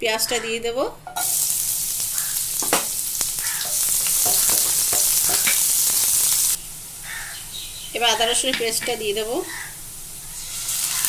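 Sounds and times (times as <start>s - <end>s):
onion sizzling in hot oil: 1.0s - 11.0s
spatula knocking pan: 2.6s - 6.1s, 8.3s - 9.0s.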